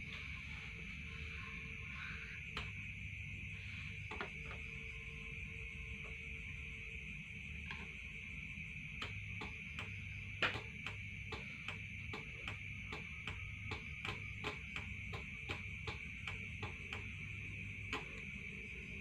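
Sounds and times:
light clicks: 9.0s - 17.1s.

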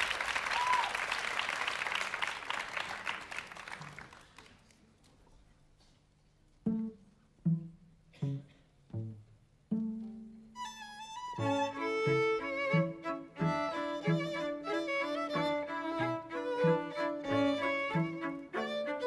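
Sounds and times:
audience applause: 0.0s - 4.8s
plucked string notes: 6.6s - 14.3s.

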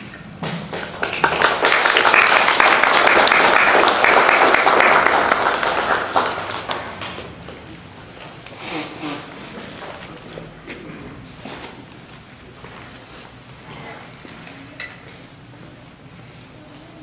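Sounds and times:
audience applauding: 0.8s - 7.6s.

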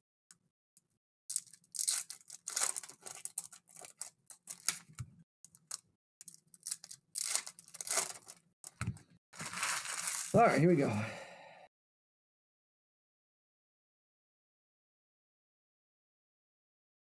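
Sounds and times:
foil wrappers crinkling and tearing: 1.3s - 5.0s, 5.6s - 8.8s, 9.4s - 10.9s.

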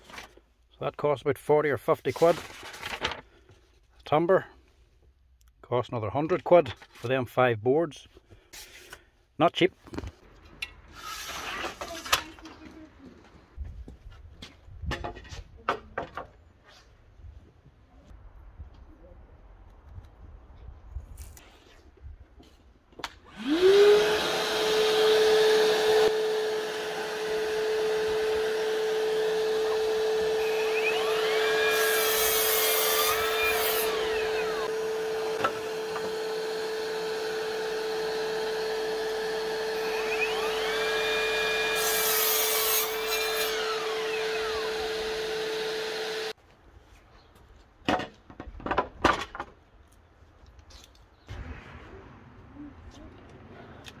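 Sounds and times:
miter saw cutting timber: 23.2s - 46.4s
steady motor whine: 23.3s - 31.6s, 33.2s - 41.8s.

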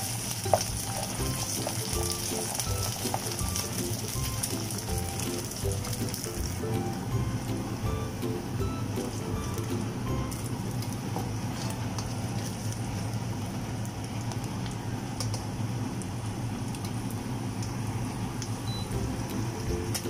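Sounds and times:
oil popping and spattering: 0.0s - 6.6s
eggs sizzling in oil: 0.0s - 20.0s
low steady hum: 0.0s - 20.0s.

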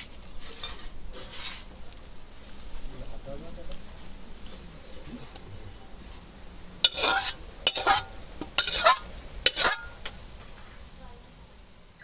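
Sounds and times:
metal spatula scraping metal pan: 6.8s - 10.0s.

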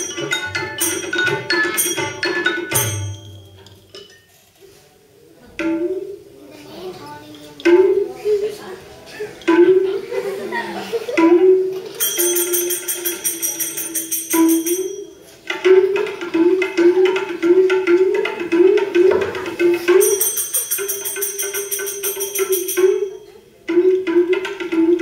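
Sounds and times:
hand cymbals jingling: 0.0s - 4.4s, 11.9s - 16.4s, 19.6s - 23.6s
held wavering melody: 11.2s - 19.0s, 19.6s - 25.0s.

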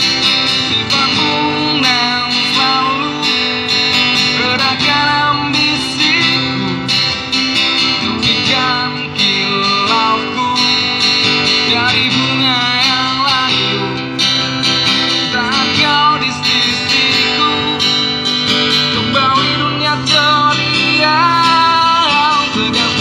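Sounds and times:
strummed acoustic guitar: 0.0s - 23.0s.

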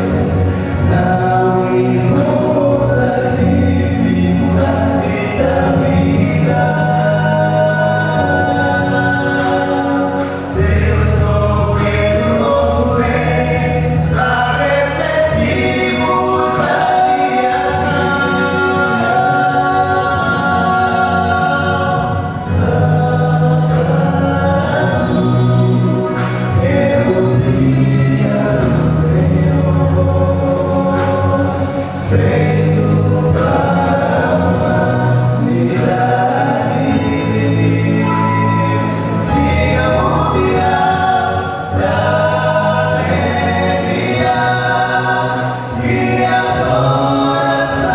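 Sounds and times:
deep bass voice: 0.0s - 47.9s
male vocal quartet singing gospel: 0.0s - 47.9s.

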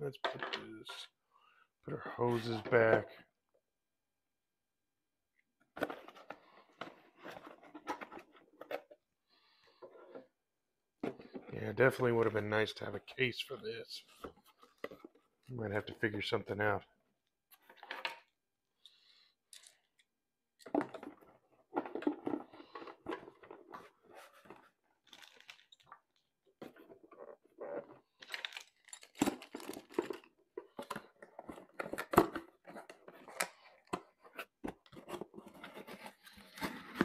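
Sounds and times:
rustling and scraping in box: 5.8s - 9.0s, 20.9s - 25.8s, 28.9s - 37.0s.

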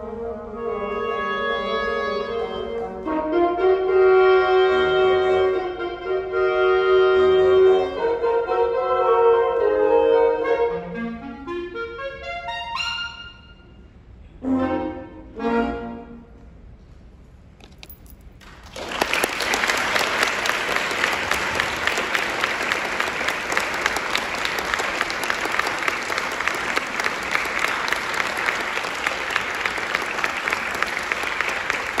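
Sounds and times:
audience applauding: 18.4s - 32.0s.

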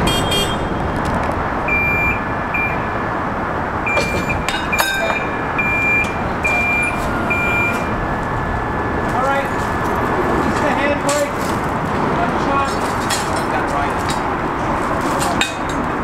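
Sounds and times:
backup alarm beeping: 0.0s - 0.9s, 1.7s - 3.2s, 3.8s - 10.1s
engine running: 0.0s - 16.0s.

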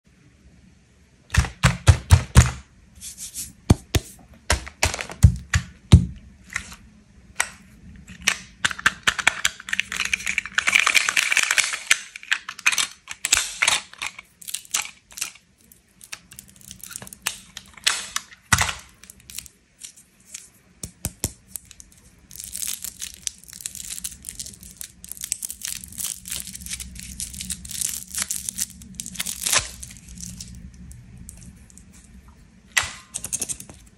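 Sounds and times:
wrapper crinkling and tearing: 9.0s - 20.5s, 21.4s - 32.1s.

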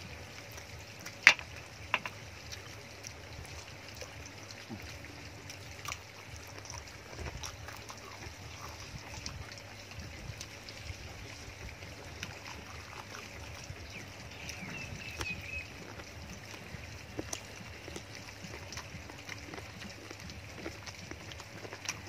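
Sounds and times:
person chewing meat: 4.8s - 22.0s.

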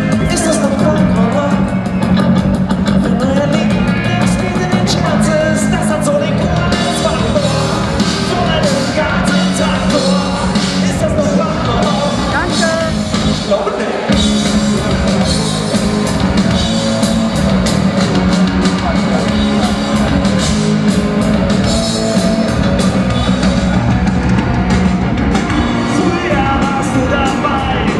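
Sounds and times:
drums: 0.0s - 27.9s
rock band playing loudly: 0.0s - 27.9s.

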